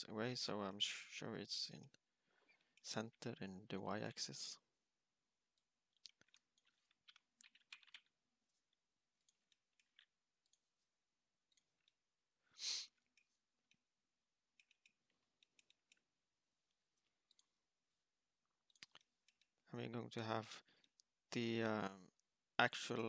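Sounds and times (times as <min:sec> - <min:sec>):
computer mouse clicks: 0:05.6 - 0:08.1, 0:14.5 - 0:16.1, 0:17.0 - 0:17.5, 0:18.6 - 0:19.6.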